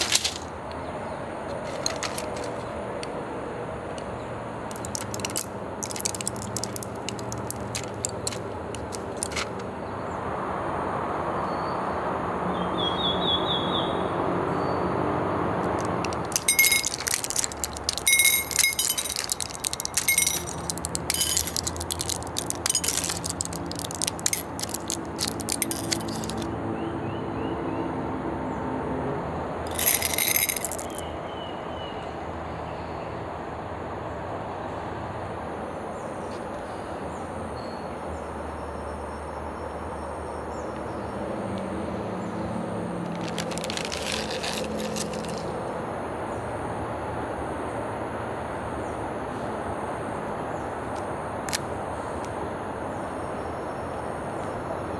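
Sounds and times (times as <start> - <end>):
candies clinking on ceramic plate: 4.7 - 9.6, 15.7 - 26.5, 29.7 - 31.0, 43.1 - 45.4.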